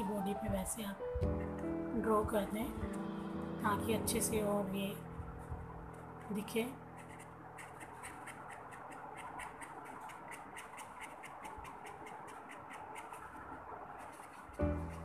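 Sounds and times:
felt-tip pen scratching on paper: 6.2s - 15.0s.

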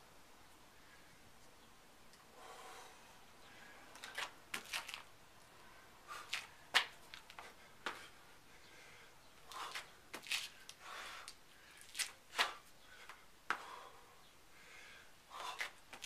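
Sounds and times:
sneakers scuffing on concrete: 4.0s - 5.1s, 6.1s - 8.1s, 9.5s - 10.7s, 11.8s - 12.6s
hands slapping on concrete: 6.3s - 8.0s, 11.9s - 12.6s.

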